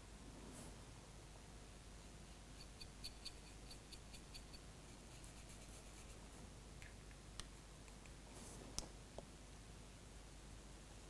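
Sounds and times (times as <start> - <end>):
paintbrush strokes on plastic: 2.4 - 6.3
scratching: 2.5 - 8.8.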